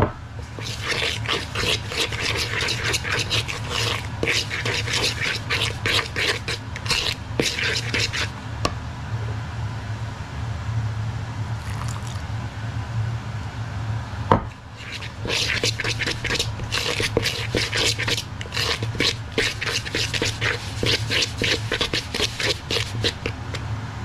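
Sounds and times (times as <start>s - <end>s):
fork scraping pastry in a bowl: 0.4s - 8.3s, 14.8s - 23.6s.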